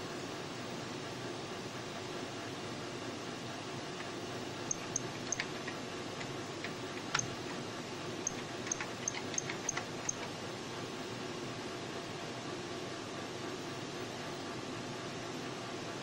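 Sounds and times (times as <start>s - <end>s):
computer fan hum: 0.0s - 16.0s
sharp clicks: 4.0s - 7.6s, 8.2s - 10.3s.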